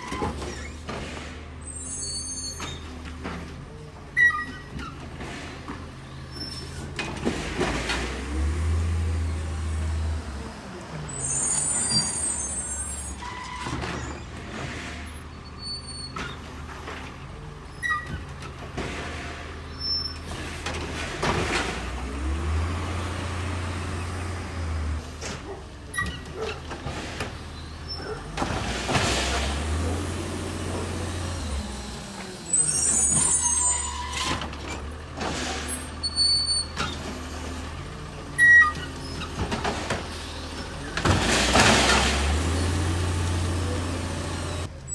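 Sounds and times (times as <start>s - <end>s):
brief high squeals: 1.7s - 2.9s, 11.1s - 13.7s
garbage truck engine revving: 5.2s - 12.9s, 13.6s - 44.9s.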